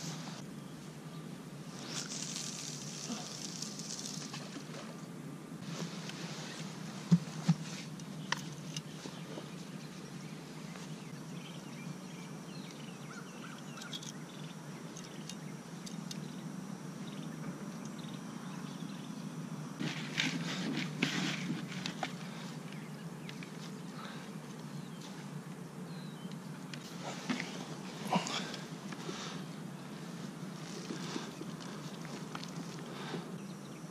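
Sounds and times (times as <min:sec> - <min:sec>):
low background noise: 0:00.0 - 0:33.9
rustling and handling noise: 0:01.7 - 0:05.0, 0:05.6 - 0:11.1, 0:19.8 - 0:25.4, 0:26.4 - 0:33.4.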